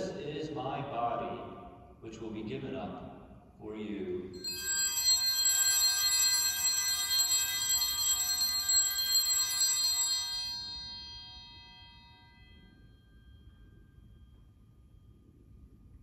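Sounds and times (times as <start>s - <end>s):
altar bells jangling: 4.4s - 15.4s.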